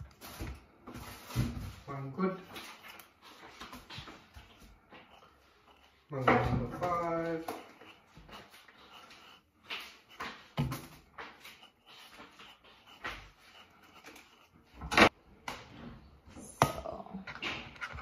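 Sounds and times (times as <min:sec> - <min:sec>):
knife scraping mango peel: 0:02.3 - 0:15.2.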